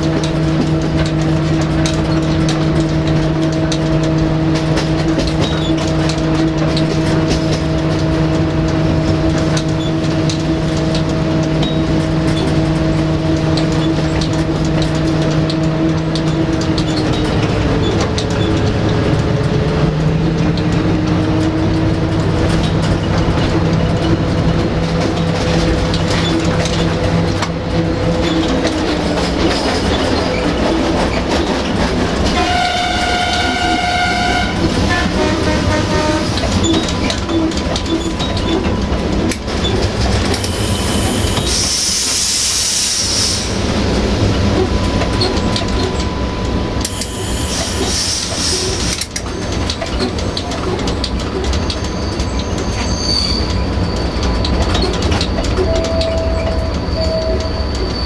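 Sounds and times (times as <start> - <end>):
train track noise: 0.0 - 58.0
locomotive horn blast: 32.2 - 36.6.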